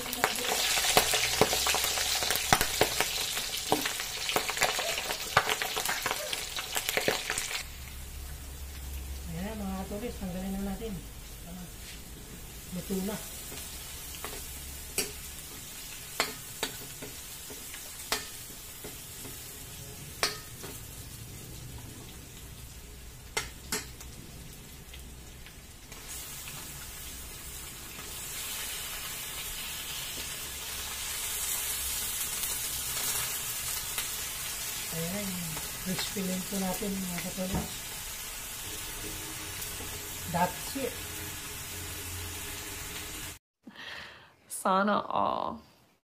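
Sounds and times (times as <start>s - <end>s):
oil sizzling in a wok: 0.0s - 43.4s
tongs knocking metal wok: 16.2s - 19.4s.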